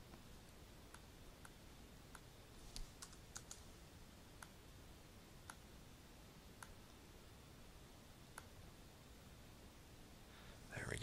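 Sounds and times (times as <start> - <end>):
mouse and keyboard clicks: 0.9 - 3.6.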